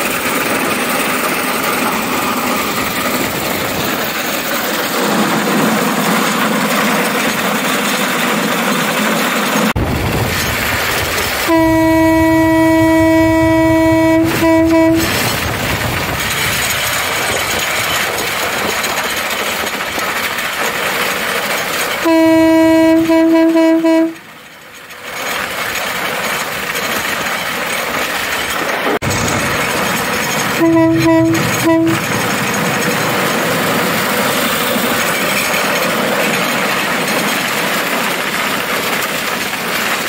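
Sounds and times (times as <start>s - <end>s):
cart travelling along rails: 0.0s - 40.0s
rail cart horn blasts: 11.4s - 15.4s, 22.0s - 24.4s, 30.6s - 32.2s.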